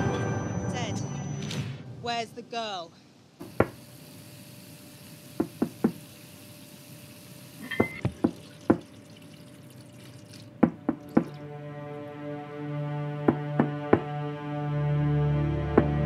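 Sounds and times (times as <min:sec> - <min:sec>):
sharp knocks and thuds: 0:10.6 - 0:11.4, 0:13.3 - 0:14.1.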